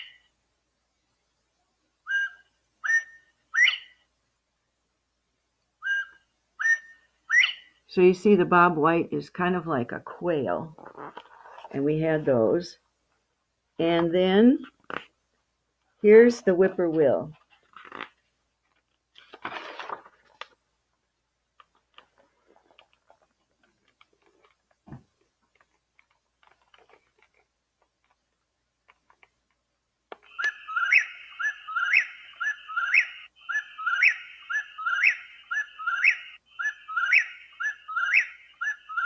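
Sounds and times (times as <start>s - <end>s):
recorded bird song: 0.0s - 4.1s, 5.7s - 8.6s, 30.2s - 39.0s
rustles and small clicks: 17.3s - 20.7s, 21.5s - 30.4s.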